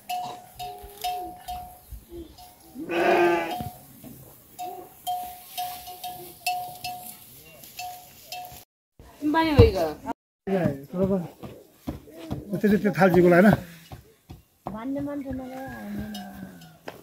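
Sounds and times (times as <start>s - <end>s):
livestock bell clanking: 0.0s - 8.7s, 15.7s - 16.8s
animal bleating: 2.8s - 3.8s.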